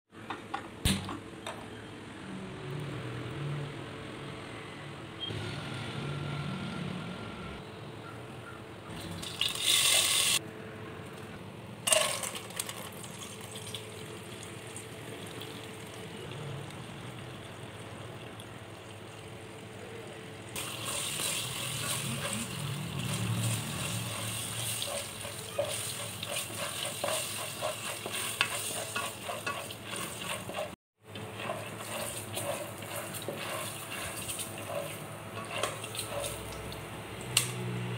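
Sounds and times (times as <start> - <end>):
popcorn crackling in hot oil: 9.2 - 10.4, 11.8 - 37.9
ladle stirring: 20.6 - 36.8.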